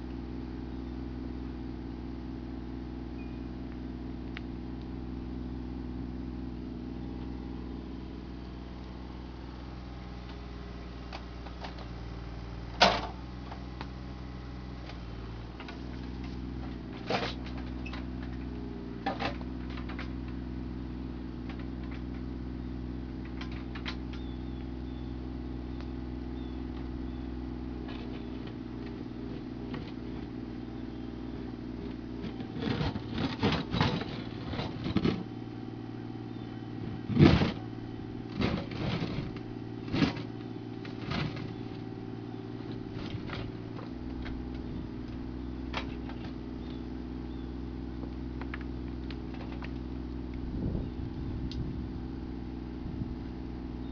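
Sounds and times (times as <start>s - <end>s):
excavator diesel engine running: 0.0s - 53.9s
bucket and arm clanking: 14.9s - 20.4s, 31.2s - 35.4s, 36.3s - 46.7s
bucket digging into stony ground: 32.2s - 35.3s.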